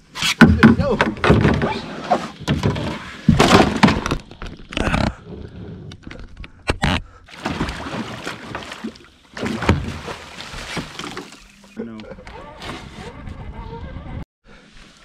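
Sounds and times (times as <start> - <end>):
fish splashing at the surface: 7.3 - 11.4.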